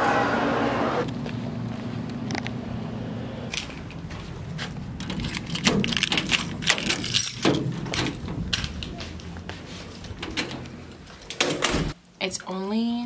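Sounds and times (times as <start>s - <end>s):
metal doorknob turning: 5.0s - 8.4s
keys jangling: 5.0s - 8.9s.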